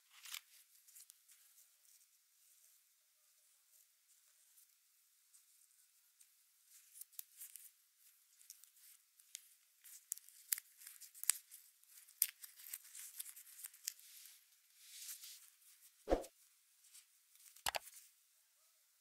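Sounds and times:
cable handling rustle: 0:00.0 - 0:04.7, 0:05.3 - 0:15.9.

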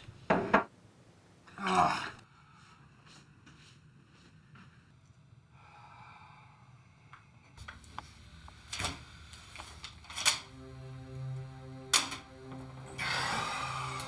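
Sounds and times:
low steady note with overtones: 0:10.2 - 0:14.0.

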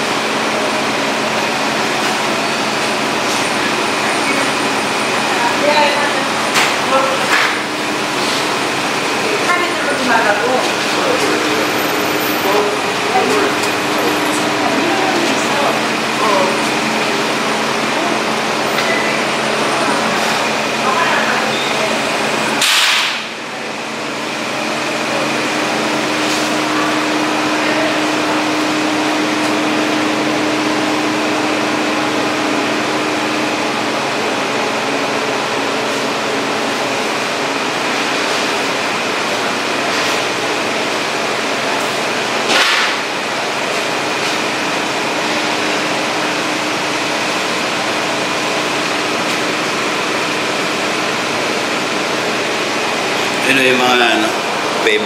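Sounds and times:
refrigerator hum and hiss: 0:00.0 - 0:55.0
brief sharp noises: 0:22.6 - 0:23.3.

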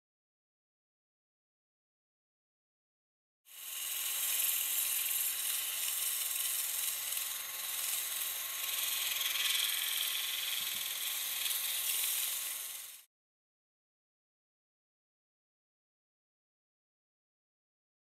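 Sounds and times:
drill motor whirring: 0:03.5 - 0:13.1
sanding hiss: 0:03.5 - 0:13.1.

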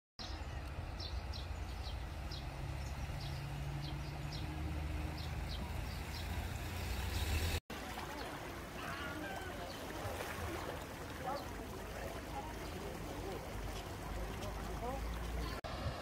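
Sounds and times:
vehicle engine hum: 0:00.2 - 0:07.6.

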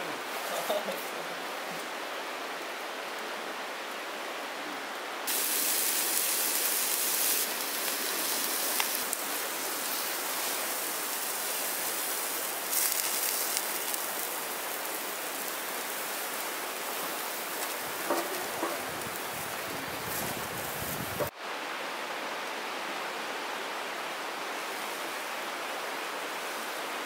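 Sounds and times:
meat sizzling over charcoal: 0:05.3 - 0:21.3.

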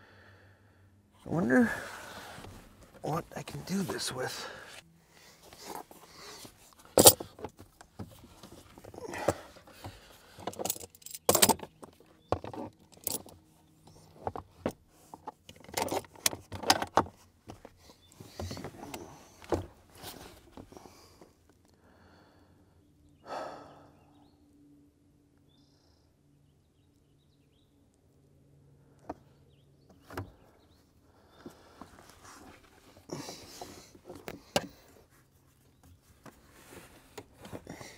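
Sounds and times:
metal hand tools clattering: 0:07.0 - 0:07.3.

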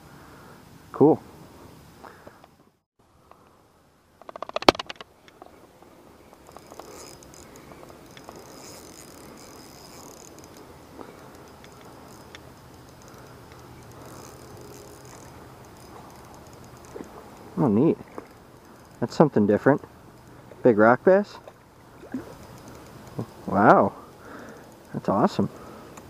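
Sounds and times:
fishing reel rapid clicking: 0:04.2 - 0:05.0, 0:06.3 - 0:20.6, 0:22.2 - 0:26.0
fishing reel whirring: 0:06.2 - 0:20.6, 0:21.8 - 0:26.0.

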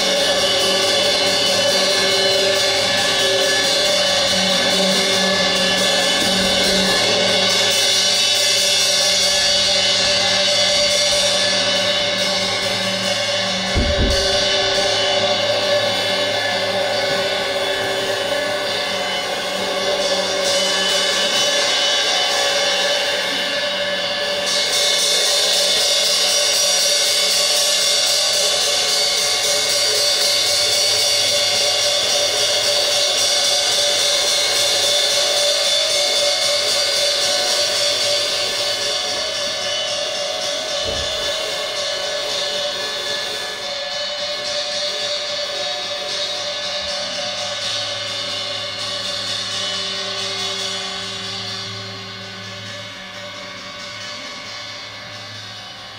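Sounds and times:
cymbals ringing: 0:00.0 - 0:55.9
low thump: 0:13.7 - 0:14.9.

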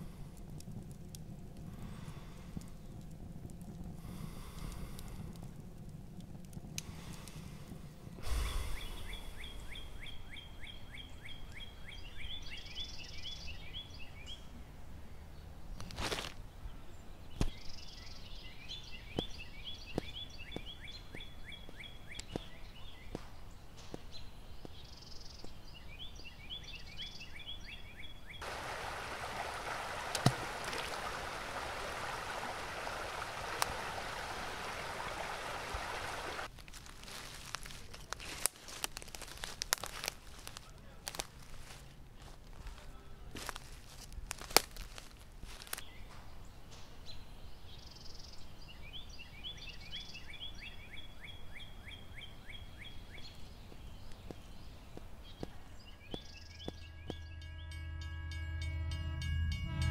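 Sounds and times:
bird singing high notes: 0:56.2 - 0:59.9.

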